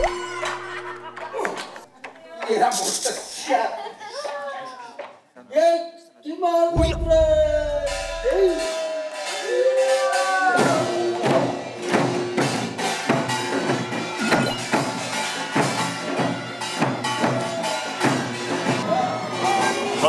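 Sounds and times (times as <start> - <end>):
drums beating driving rhythm: 6.8 - 18.9.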